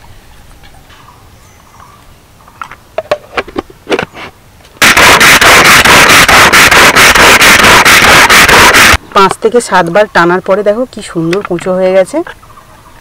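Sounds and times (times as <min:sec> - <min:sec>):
pull-cord chopper rattling: 0:04.8 - 0:09.0.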